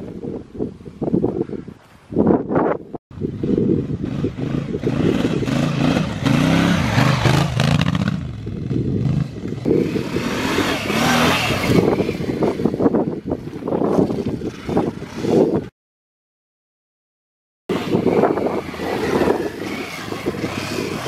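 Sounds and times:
motorcycle engine revving: 3.2s - 15.7s, 17.7s - 21.0s
second motorcycle passing: 3.4s - 12.9s, 17.7s - 21.0s.

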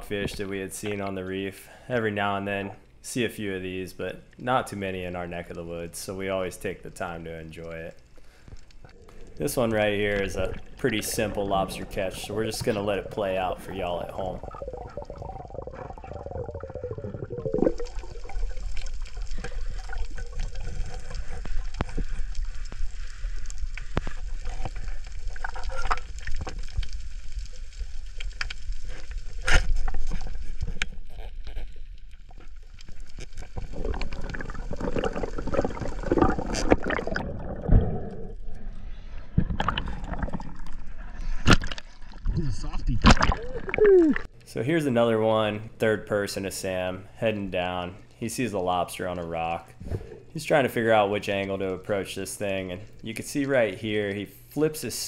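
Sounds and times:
reef clicks and crackles: 2.6s - 44.6s, 47.3s - 55.0s
underwater water rush and gurgle: 8.2s - 44.3s.

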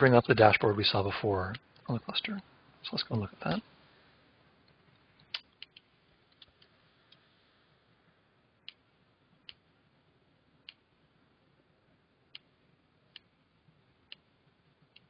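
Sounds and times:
keyboard and mouse clicks: 5.2s - 7.2s.

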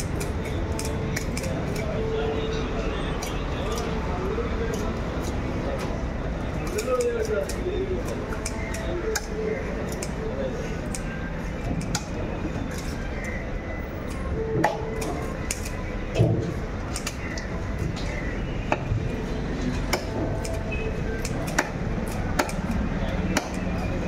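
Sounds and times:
steady background noise: 0.0s - 24.0s
knife chopping on wooden block: 21.5s - 22.7s.

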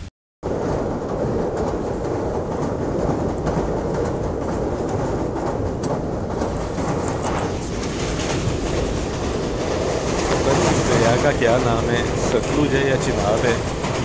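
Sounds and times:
train wheels on rails: 0.0s - 14.0s.

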